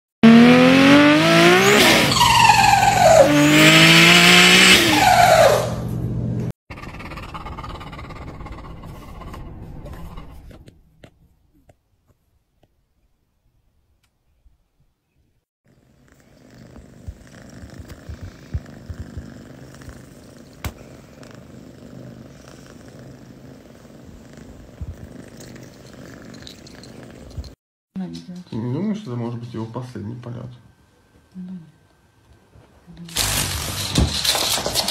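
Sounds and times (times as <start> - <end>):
car engine revving hard: 0.2 - 5.7
cats purring: 15.7 - 27.6.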